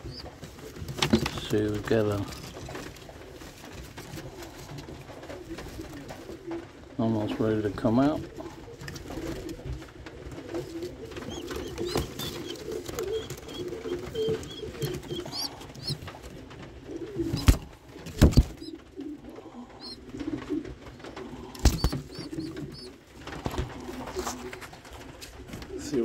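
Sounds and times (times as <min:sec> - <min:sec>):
pigeons cooing: 0:00.0 - 0:07.0, 0:08.2 - 0:26.0
thin high peeps: 0:11.3 - 0:16.0, 0:21.6 - 0:22.9.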